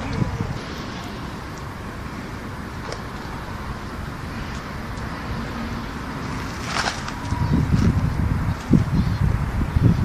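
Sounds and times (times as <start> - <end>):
distant road traffic hum: 0.0 - 10.0.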